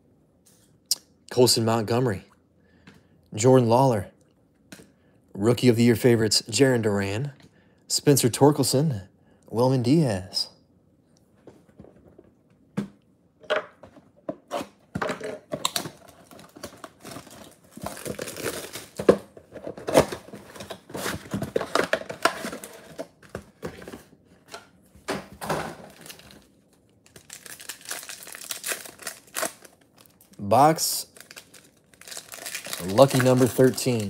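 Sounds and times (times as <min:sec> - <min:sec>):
wrappers crinkling and tearing: 0:15.6 - 0:19.1, 0:25.9 - 0:34.0.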